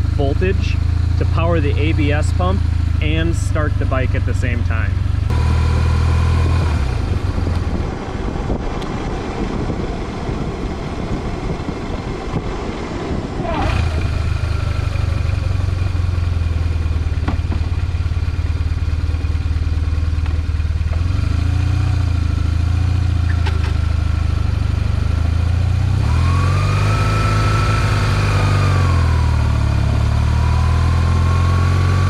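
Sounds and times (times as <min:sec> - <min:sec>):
high whine: 0:00.0 - 0:19.7
motorcycle engine idling: 0:00.0 - 0:25.8.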